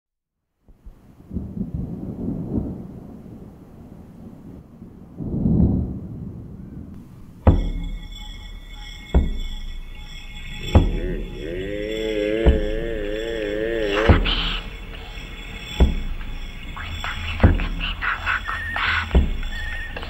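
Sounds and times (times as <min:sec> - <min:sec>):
thunder rumbling: 0:00.8 - 0:20.0
deep rhythmic thuds: 0:06.9 - 0:20.0
held high chord: 0:07.0 - 0:20.0.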